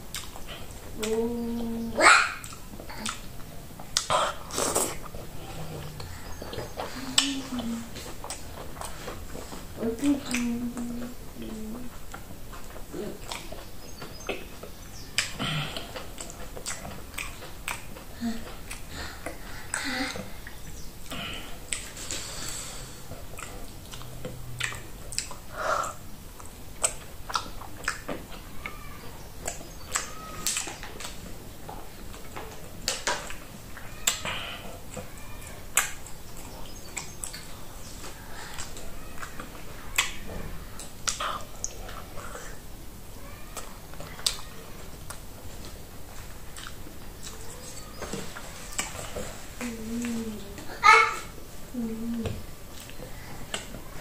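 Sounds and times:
wet lip smacks and clicks: 0.1 - 1.2, 2.4 - 5.2, 12.1 - 14.6, 15.2 - 19.8, 23.3 - 28.3, 29.4 - 31.2, 40.8 - 42.5.

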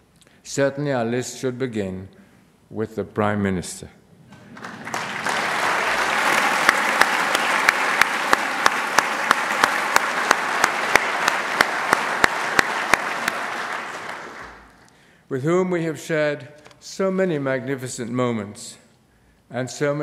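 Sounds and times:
audience applauding: 4.3 - 14.9
close hand clapping: 4.3 - 14.9.

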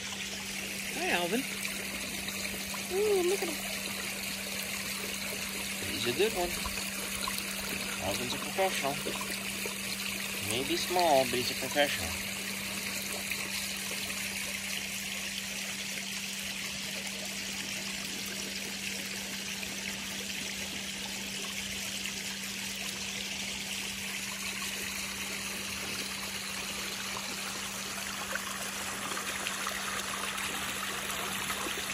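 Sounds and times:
water splashing over waterfall: 0.0 - 14.7.

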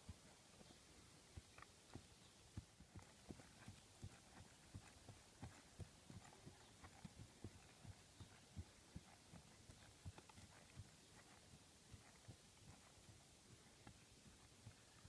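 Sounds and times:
horse hoofbeats on ground: 0.0 - 15.0.

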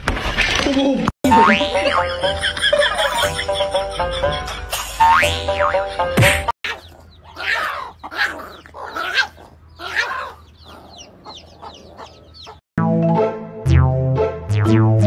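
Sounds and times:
chicks peeping: 6.6 - 12.6
hen clucking: 6.6 - 12.6.

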